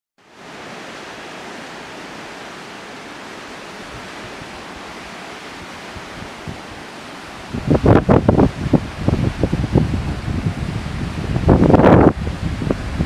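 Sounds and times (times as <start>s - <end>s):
rushing water: 0.2s - 13.0s
wind thumps on microphone: 7.4s - 13.0s.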